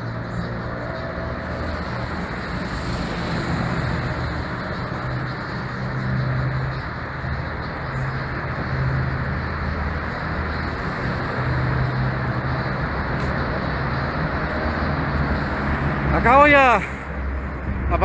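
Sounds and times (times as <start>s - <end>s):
passing vehicle engine hum: 0.0s - 18.0s
road traffic in tunnel: 0.0s - 18.0s.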